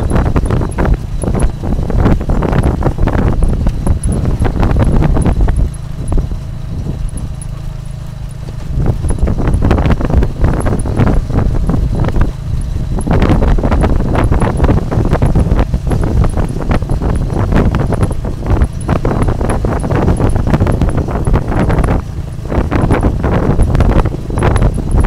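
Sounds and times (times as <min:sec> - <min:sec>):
carriage rattling and knocking: 0:00.0 - 0:25.0
motorbike engine running: 0:00.0 - 0:25.0.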